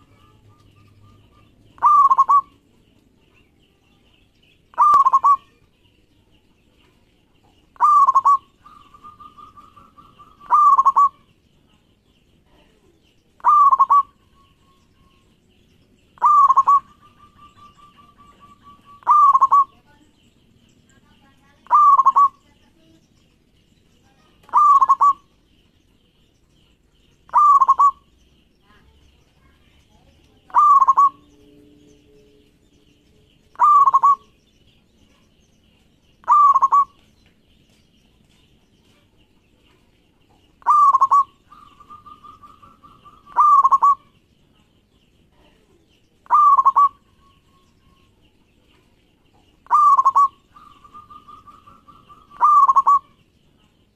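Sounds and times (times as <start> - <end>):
dove cooing: 0.0 - 2.6, 4.7 - 5.6, 7.8 - 11.3, 13.4 - 14.5, 16.2 - 19.8, 21.6 - 22.4, 24.4 - 25.3, 27.3 - 28.1, 30.5 - 31.5, 33.5 - 34.4, 36.2 - 37.0, 40.6 - 44.2, 46.2 - 47.4, 49.6 - 53.2.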